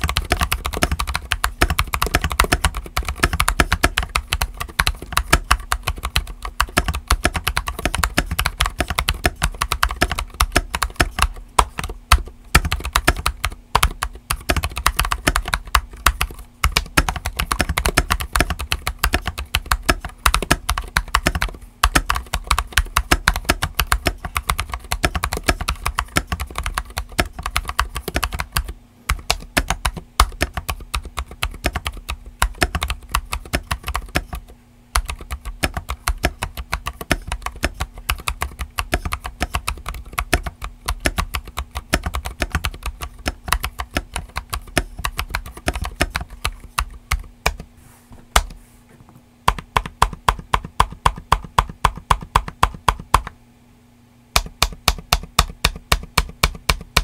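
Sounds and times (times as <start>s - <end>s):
fast mechanical keyboard typing: 0.0s - 47.6s, 49.5s - 53.4s, 54.4s - 57.0s.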